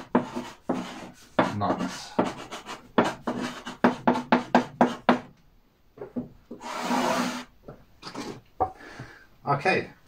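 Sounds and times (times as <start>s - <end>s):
chalk scratching on blackboard: 0.0s - 5.2s, 6.5s - 7.5s.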